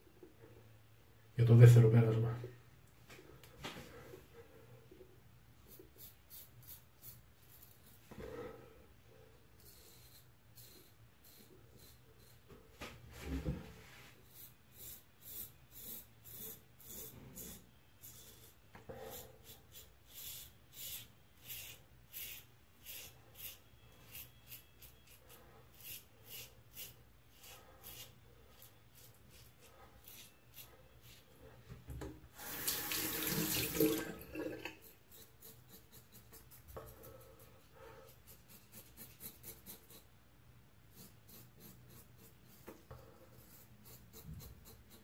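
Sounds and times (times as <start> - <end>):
razor scraping stubble: 19.4 - 31.2, 40.9 - 45.0.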